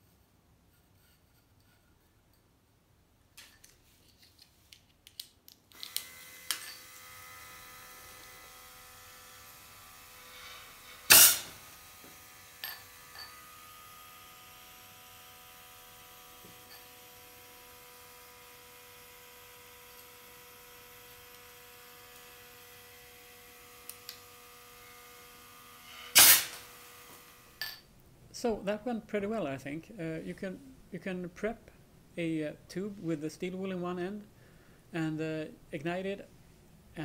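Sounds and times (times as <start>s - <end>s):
clicks of wires and contacts: 4.7s - 6.6s
electric air pump humming: 5.8s - 27.7s
compressed air blast: 10.3s - 11.6s, 26.0s - 26.6s.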